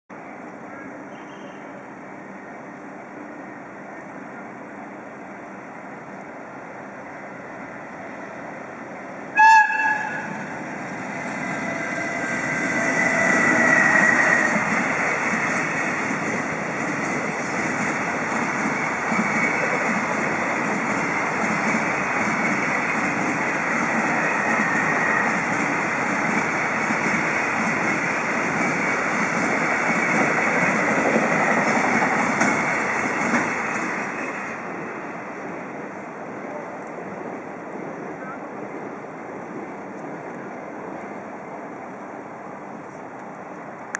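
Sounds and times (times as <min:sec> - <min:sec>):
faint high locomotive whine: 0:00.1 - 0:43.9
freight train rolling by: 0:00.1 - 0:43.9
locomotive whistle blast: 0:09.4 - 0:10.3.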